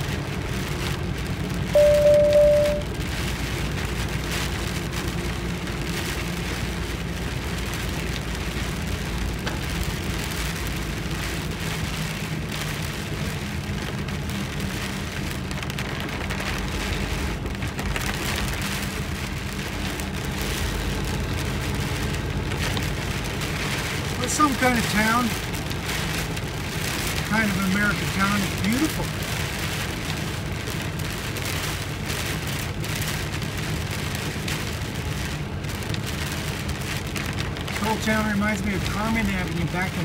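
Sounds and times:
engine and tyres running: 0.0s - 40.0s
heavy rain on vehicle: 0.0s - 40.0s
single-pitched beep: 1.8s - 2.9s.

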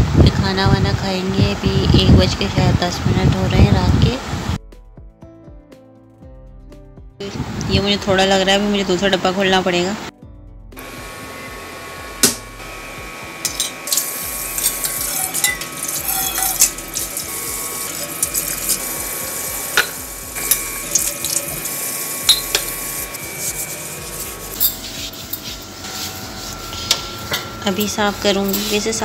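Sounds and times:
tap water running into sink: 13.4s - 24.7s.

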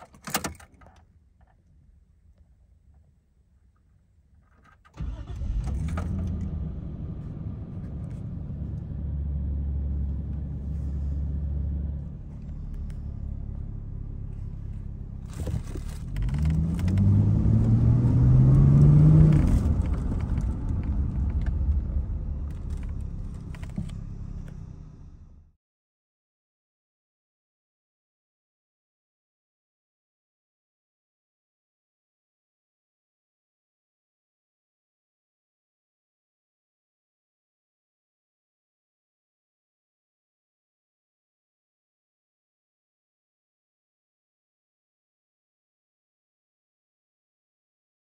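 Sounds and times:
car engine running: 5.0s - 25.5s.

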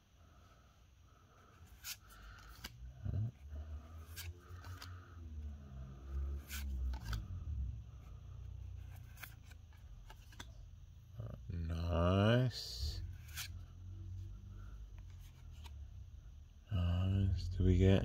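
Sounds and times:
cards rubbing: 1.3s - 5.2s, 5.8s - 7.4s, 8.1s - 10.6s, 13.0s - 13.7s.

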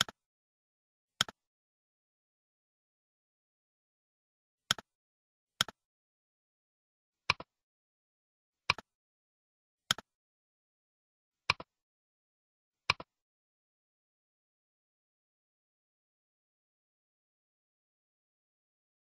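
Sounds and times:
computer mouse button clicking: 4.7s - 4.9s, 9.9s - 10.1s.

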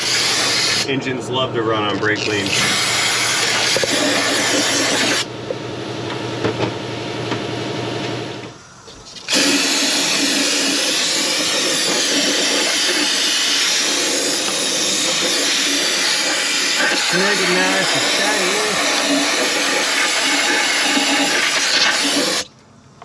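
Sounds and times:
aerosol spray hissing: 9.2s - 22.4s.

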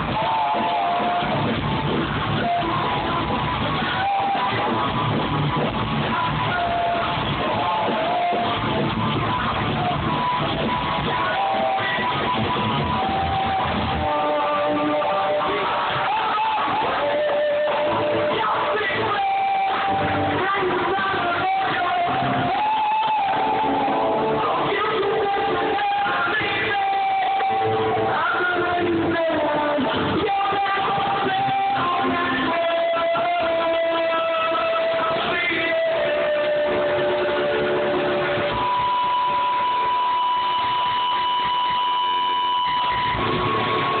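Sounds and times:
guitar: 0.0s - 44.0s
live band playing: 0.0s - 44.0s
person singing: 0.0s - 44.0s.

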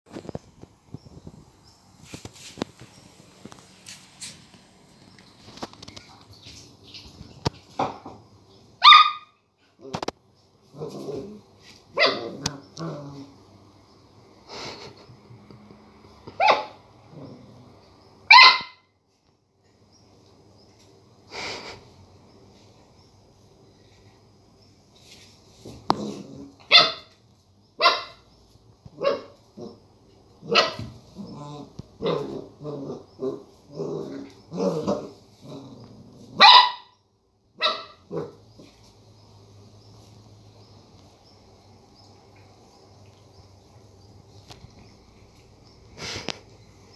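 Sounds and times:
puppy barking high-pitched yaps: 8.8s - 9.4s, 12.0s - 12.3s, 16.4s - 16.8s, 18.3s - 18.9s, 26.7s - 27.1s, 27.8s - 28.2s, 29.0s - 29.4s, 30.5s - 30.9s, 36.4s - 36.9s, 37.6s - 38.0s
puppy breathy puff: 21.3s - 21.9s, 45.9s - 46.5s.

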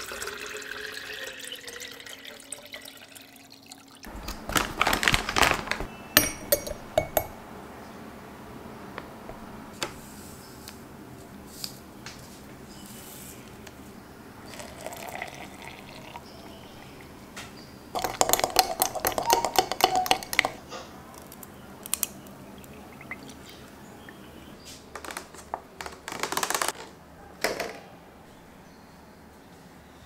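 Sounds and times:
liquid pouring into a glass: 0.0s - 4.1s, 14.5s - 16.5s, 18.0s - 20.6s, 22.5s - 23.6s
plastic container crackling: 4.1s - 6.0s, 25.0s - 26.9s
ice cubes clinking: 4.1s - 7.4s, 18.0s - 20.6s
spoon stirring in a glass: 6.2s - 7.4s, 18.0s - 20.6s.

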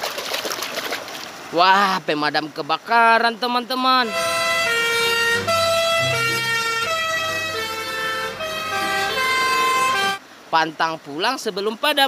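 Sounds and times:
two-tone fire engine siren: 4.0s - 10.2s.

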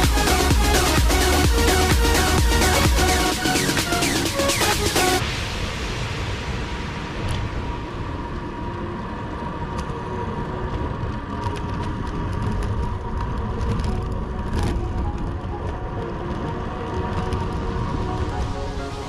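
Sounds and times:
electronic dance music: 0.0s - 8.0s, 14.8s - 19.0s.

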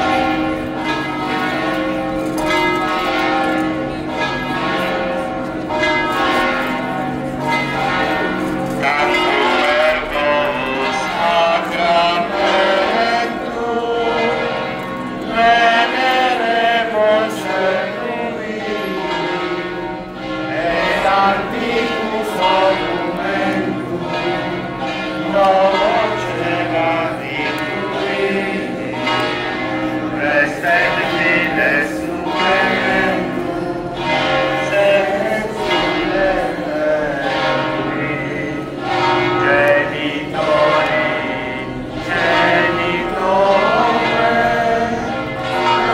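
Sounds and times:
church bells ringing: 0.0s - 45.9s
voices singing: 8.9s - 14.5s, 20.5s - 24.3s, 25.3s - 29.1s, 30.2s - 38.7s, 39.4s - 45.9s.

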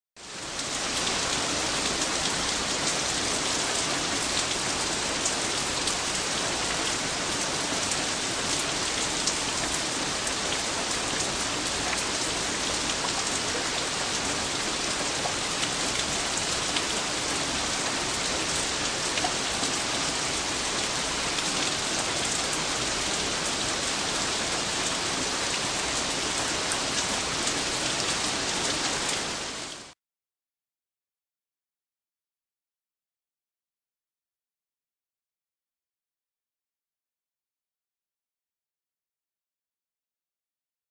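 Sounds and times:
heavy rain falling: 0.2s - 30.0s.

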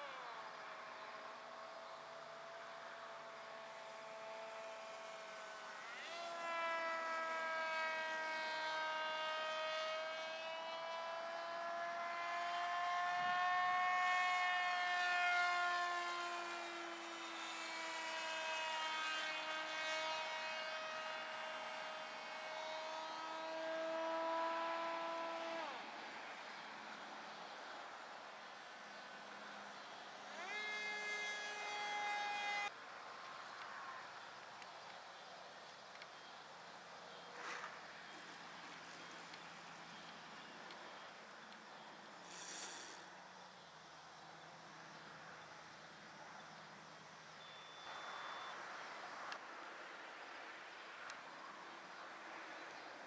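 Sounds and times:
model aircraft motor buzzing: 0.0s - 32.8s, 37.3s - 43.2s.

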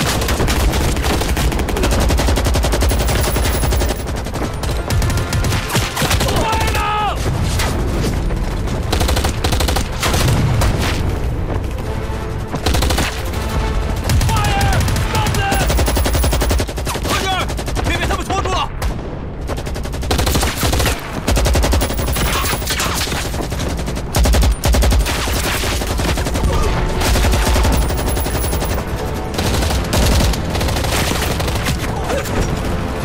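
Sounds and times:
automatic gunfire: 0.0s - 6.7s, 14.2s - 18.3s, 19.6s - 28.8s
person shouting: 6.3s - 7.2s, 14.3s - 15.7s.

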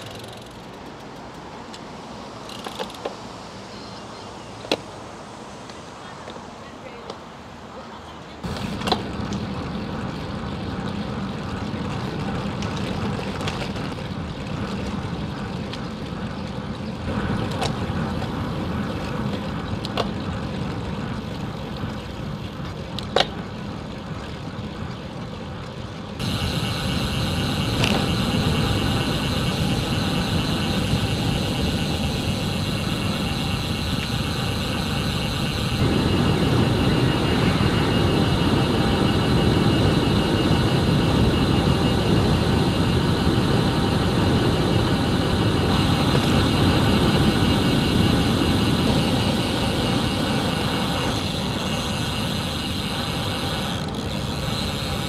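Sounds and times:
bike tyres rolling on tarmac: 0.0s - 4.0s, 7.8s - 55.0s
wind rushing over microphone: 26.2s - 53.4s.

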